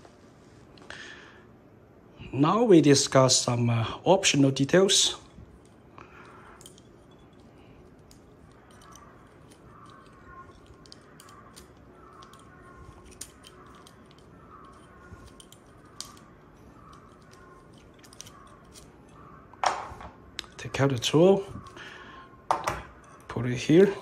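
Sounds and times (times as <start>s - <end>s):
lock tool clicking: 6.6s - 19.7s.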